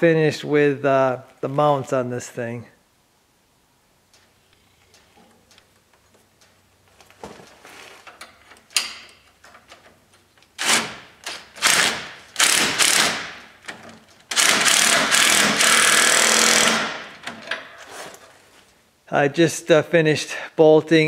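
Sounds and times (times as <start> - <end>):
cordless impact wrench: 10.6 - 13.5, 14.3 - 17.4.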